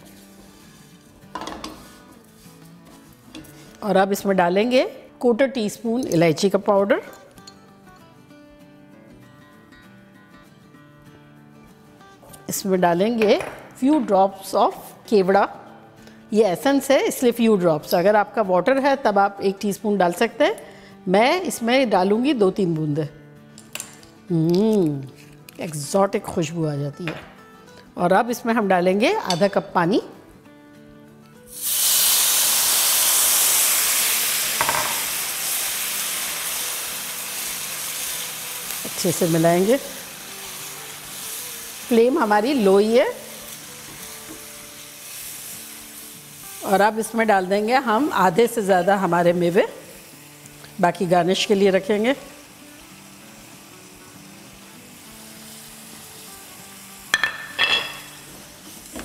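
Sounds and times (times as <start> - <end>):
faint background music: 0.0 - 59.0
kitchenware clinking: 29.2 - 29.7, 34.6 - 35.0, 57.2 - 58.3
water sizzling in hot pan: 31.5 - 59.0.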